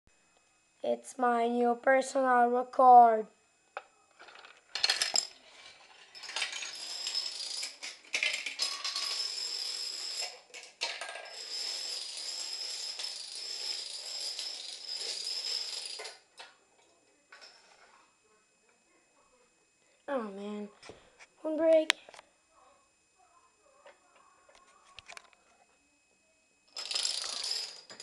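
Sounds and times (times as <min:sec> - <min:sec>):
plastic dominoes clattering: 0:04.2 - 0:16.2, 0:26.8 - 0:28.0.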